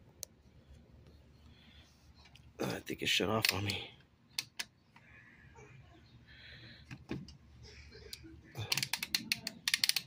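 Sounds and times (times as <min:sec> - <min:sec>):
rotary dial clicks: 0:08.7 - 0:10.0.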